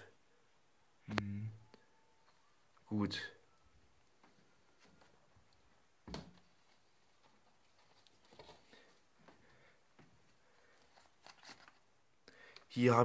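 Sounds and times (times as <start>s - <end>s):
faint rustles and clicks: 4.1s - 12.0s.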